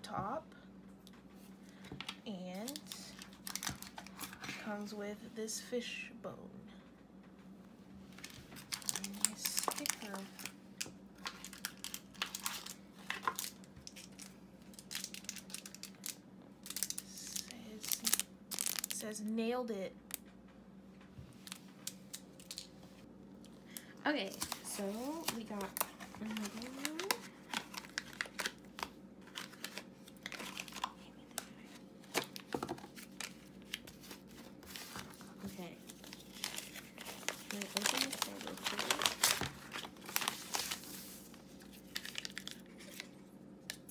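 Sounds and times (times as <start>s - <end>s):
faint steady hum: 0.0s - 43.9s
plastic wrapper crinkling: 2.0s - 4.4s, 8.2s - 19.1s, 21.4s - 22.8s, 24.2s - 43.8s.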